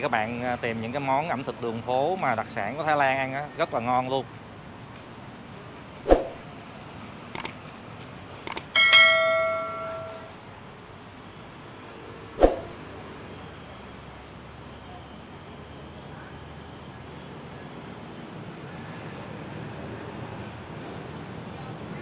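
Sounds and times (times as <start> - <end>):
quick clicks: 7.4 - 7.6, 8.5 - 8.7
bright bell ding: 8.6 - 10.4.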